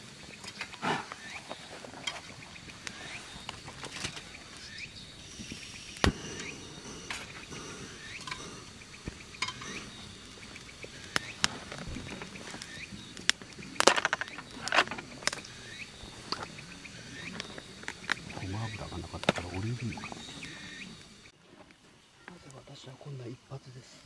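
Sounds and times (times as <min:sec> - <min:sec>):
insects trilling: 0:00.0 - 0:24.0
camping gear clicks: 0:10.5 - 0:15.6.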